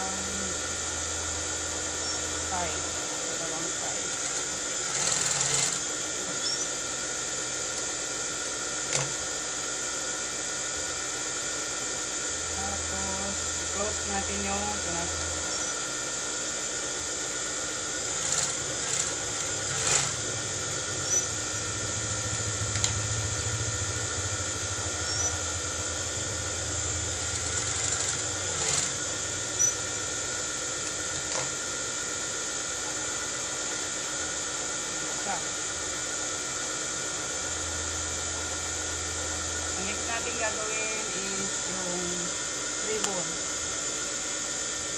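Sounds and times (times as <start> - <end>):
sewing machine motor whirring: 0.0 - 9.4, 17.2 - 42.3
mechanical hum with high whine: 0.0 - 44.9
sewing machine stitching: 4.0 - 5.8, 18.1 - 20.3, 27.2 - 29.8.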